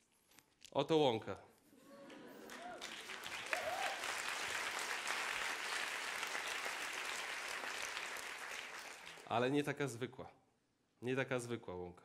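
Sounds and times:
audience applauding: 0:02.0 - 0:09.3.

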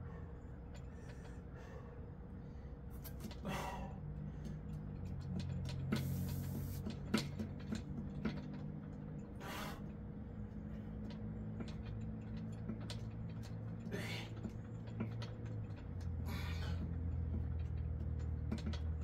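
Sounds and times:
man breathing sharply: 0:00.0 - 0:02.8, 0:03.4 - 0:04.6, 0:16.2 - 0:16.9
steady low hum: 0:00.0 - 0:19.0.

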